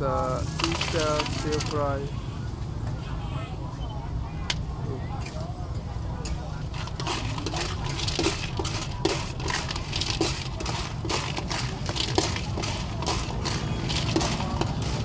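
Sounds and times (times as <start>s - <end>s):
metal ladle scraping wok: 0.2s - 2.0s, 6.6s - 15.0s
shells clattering against pan: 0.4s - 2.0s, 6.7s - 15.0s.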